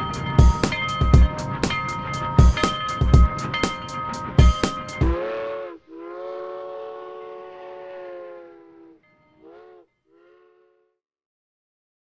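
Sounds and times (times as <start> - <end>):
steam locomotive chime whistle: 0.0 - 10.8.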